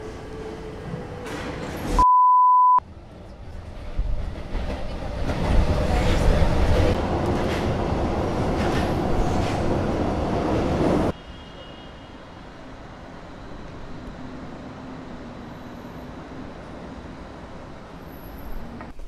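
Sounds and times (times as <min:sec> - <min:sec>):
city street background: 0:00.0 - 0:19.0
metro train rumbling and rattling: 0:02.8 - 0:11.2.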